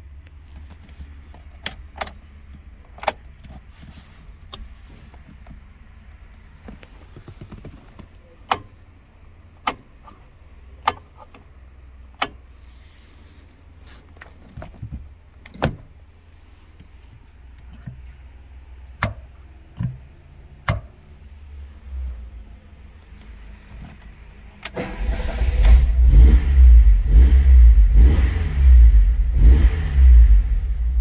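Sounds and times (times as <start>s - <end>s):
car interior fittings clicking: 6.6s - 8.8s, 9.6s - 10.2s, 10.8s - 12.5s, 18.8s - 21.0s.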